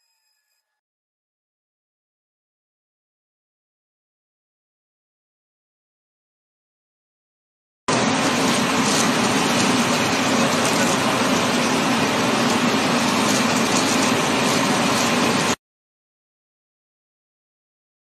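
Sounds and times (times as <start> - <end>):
power sander grinding pencils: 7.9 - 15.6.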